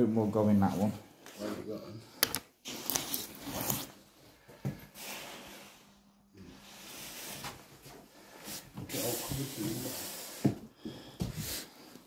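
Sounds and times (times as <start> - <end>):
close breathing: 4.2 - 12.0.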